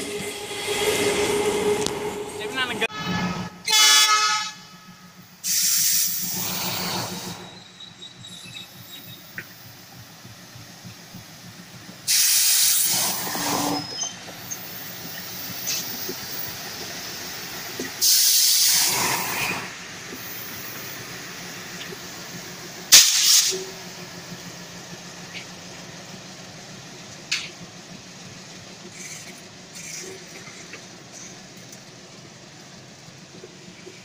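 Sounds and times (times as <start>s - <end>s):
diesel locomotive passing: 0.0s - 34.0s
loud hissing bursts: 5.4s - 7.5s, 12.1s - 13.8s, 18.0s - 20.9s, 22.9s - 23.7s.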